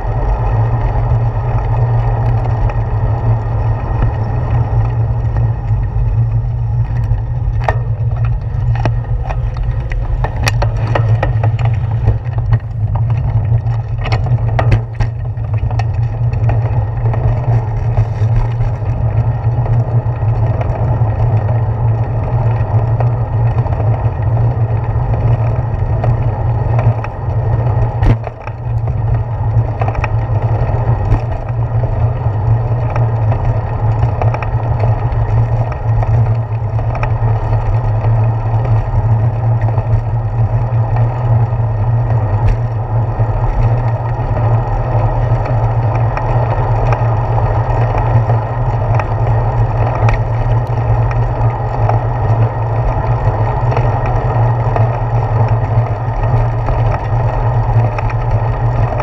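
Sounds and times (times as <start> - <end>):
tyres rolling on pavement: 0.0 - 59.0
wind rumble: 0.0 - 59.0.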